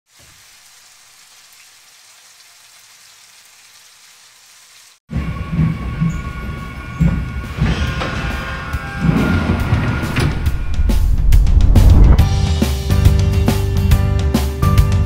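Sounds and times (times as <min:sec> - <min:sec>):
food sizzling in a wok: 0:00.1 - 0:05.0
music with heavy beat: 0:10.6 - 0:15.0.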